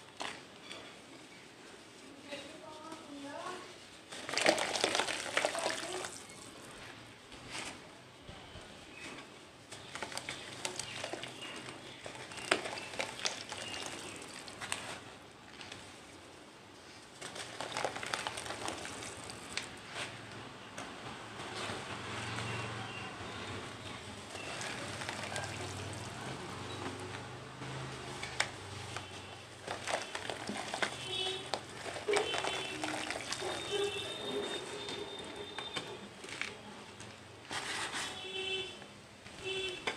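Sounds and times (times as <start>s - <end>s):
cement chunks crumbling in water: 4.1s - 6.3s, 9.7s - 15.8s, 17.2s - 19.8s, 24.2s - 26.4s, 28.3s - 34.5s
small splashes: 29.6s - 34.2s.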